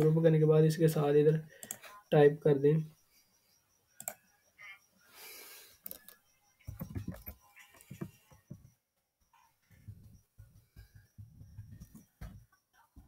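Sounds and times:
keyboard typing: 1.5s - 2.1s, 4.0s - 4.8s, 5.7s - 8.8s.

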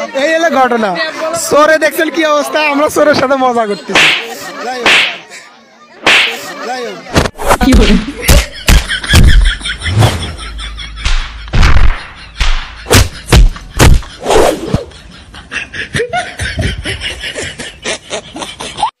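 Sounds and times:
voices: 0.8s - 8.3s
people laughing: 3.3s - 19.0s.

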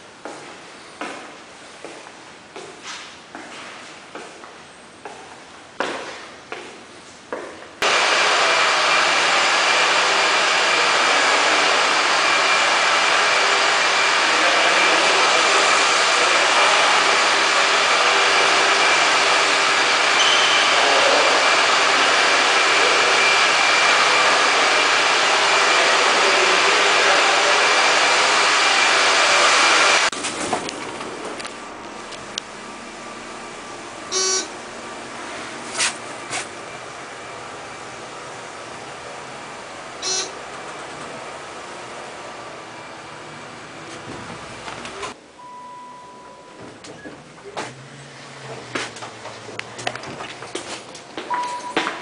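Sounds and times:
rushing machine noise: 7.8s - 45.2s.

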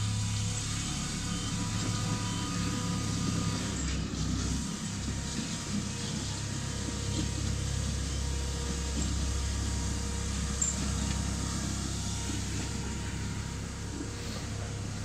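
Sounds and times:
miniature train rumbling: 0.0s - 15.0s.

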